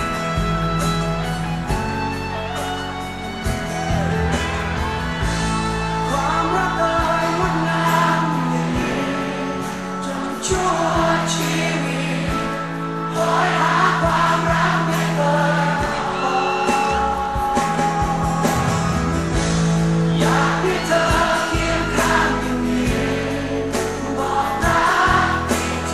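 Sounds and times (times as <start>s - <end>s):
band playing pop: 0.0s - 25.9s
voices singing together: 6.2s - 19.2s, 20.0s - 25.9s.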